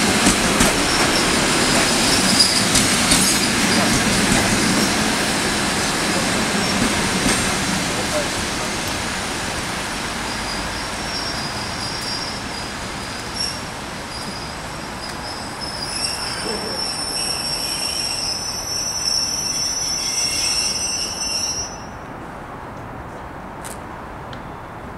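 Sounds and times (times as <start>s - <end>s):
train coaches rolling on rails: 0.0s - 23.8s
train wheels squealing: 0.9s - 5.0s, 10.3s - 22.0s.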